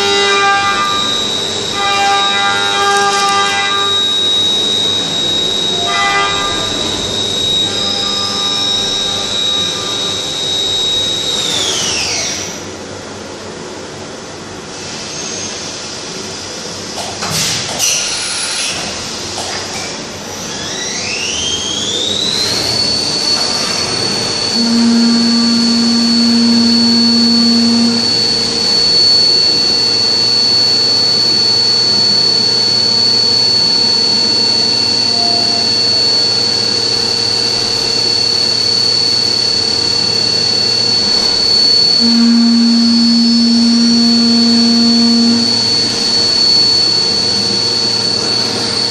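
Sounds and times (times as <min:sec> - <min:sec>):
spindle high whine: 0:00.0 - 0:11.4, 0:22.5 - 0:48.9
lower machine hum: 0:23.9 - 0:48.9.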